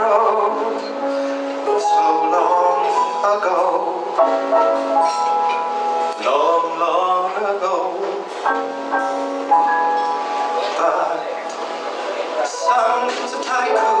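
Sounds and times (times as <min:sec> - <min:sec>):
man singing: 0:00.0 - 0:04.9, 0:06.0 - 0:08.8, 0:10.5 - 0:11.6, 0:12.2 - 0:14.0
band playing slow song: 0:00.0 - 0:14.0.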